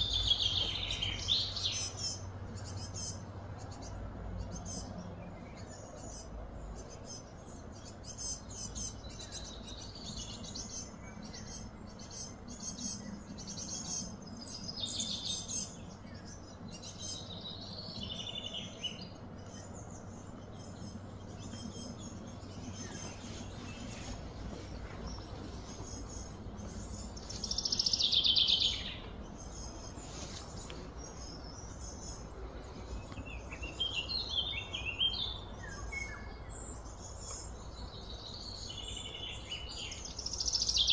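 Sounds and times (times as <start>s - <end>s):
birds chirping and trilling: 0.0s - 40.9s.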